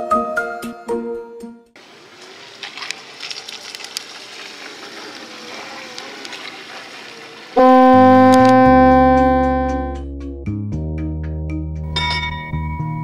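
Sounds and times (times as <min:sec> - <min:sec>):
clicks: 0:07.6 - 0:10.0
faint wavering whine: 0:07.6 - 0:10.0
loud horn-like tone: 0:07.6 - 0:10.0.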